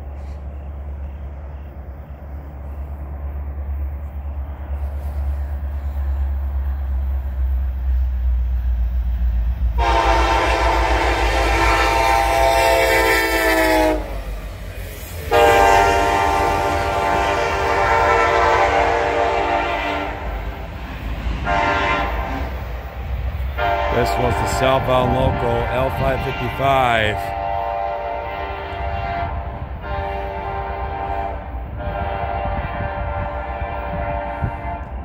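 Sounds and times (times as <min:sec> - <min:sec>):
diesel engines rumbling: 0:00.0 - 0:35.0
locomotive air horn blasts: 0:09.8 - 0:14.2, 0:15.3 - 0:20.4, 0:21.4 - 0:22.5, 0:23.6 - 0:35.0.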